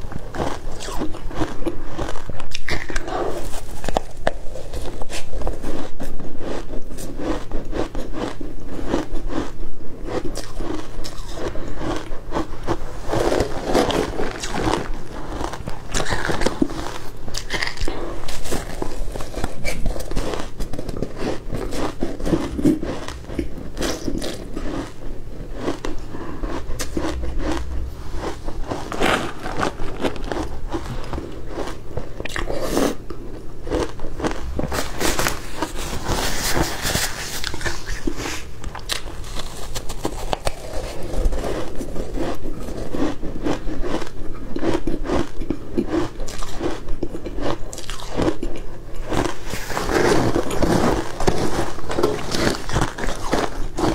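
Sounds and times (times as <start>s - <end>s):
ice crunching between teeth: 0.0s - 53.9s.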